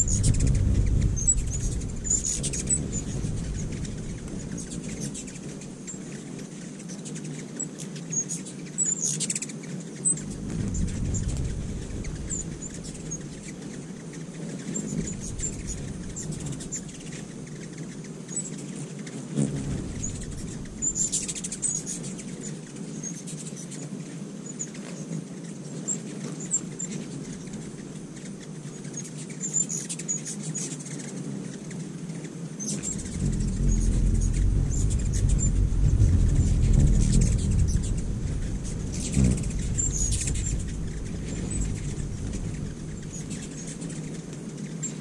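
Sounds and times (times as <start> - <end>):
hummingbird chip calls: 0.0 - 6.3, 10.0 - 22.6, 32.6 - 45.0
hummingbird wing hum: 0.0 - 7.5, 8.4 - 23.5, 25.7 - 30.0, 32.6 - 45.0.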